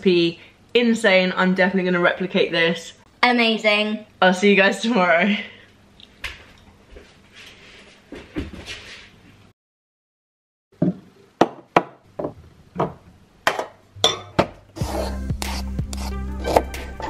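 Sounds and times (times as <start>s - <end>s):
glass jars clinking and knocking: 13.6s - 14.5s.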